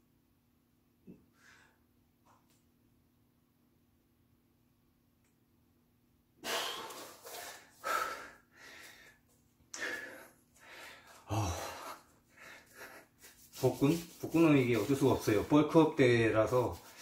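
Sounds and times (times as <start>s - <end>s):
man exhaling and gasping: 6.4s - 13.3s.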